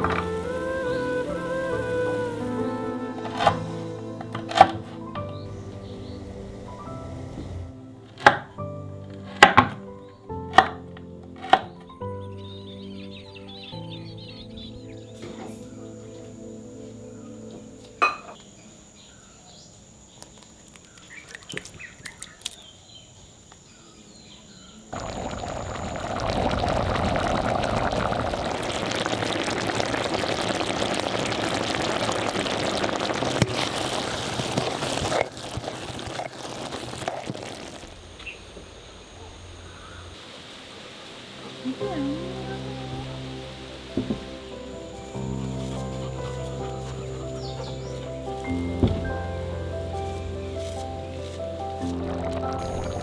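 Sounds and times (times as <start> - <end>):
liquid pouring: 25.0 - 38.0.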